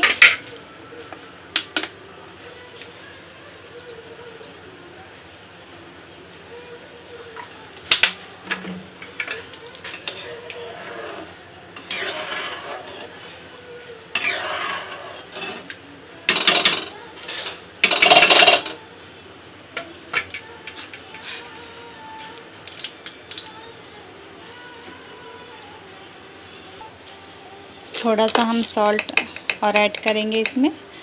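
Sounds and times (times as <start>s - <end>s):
ladle scraping and clinking in pan: 7.9s - 13.4s, 14.1s - 15.7s.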